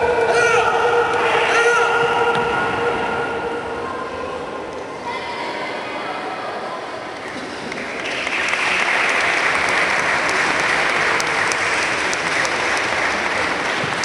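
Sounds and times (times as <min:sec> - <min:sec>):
audience applauding: 0:07.6 - 0:14.0.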